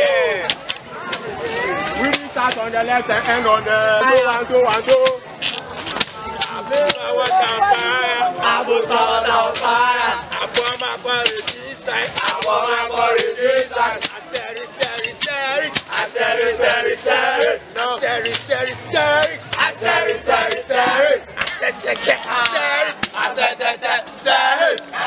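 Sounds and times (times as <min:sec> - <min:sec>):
man singing: 0:06.5 - 0:25.0
sharp percussive hits: 0:09.4 - 0:23.4.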